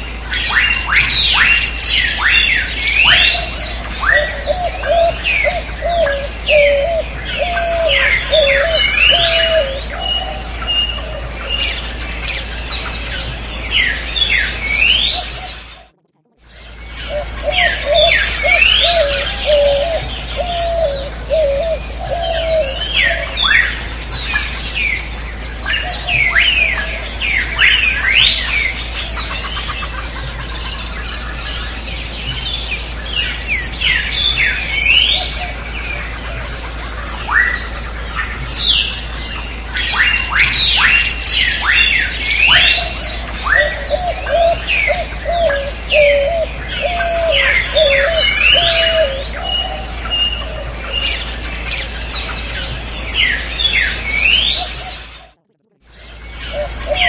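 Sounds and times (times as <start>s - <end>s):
whistled bird notes: 0.0s - 15.9s, 16.6s - 25.0s, 37.2s - 55.4s
birds chirping and calling: 0.0s - 57.0s
steady low hum: 0.0s - 57.0s
low wavering call: 0.3s - 13.3s, 13.9s - 25.0s, 32.5s - 57.0s.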